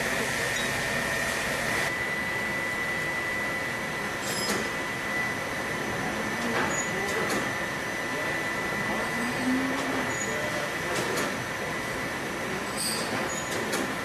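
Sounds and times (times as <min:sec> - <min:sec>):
machine high-pitched whine: 0:00.0 - 0:14.0.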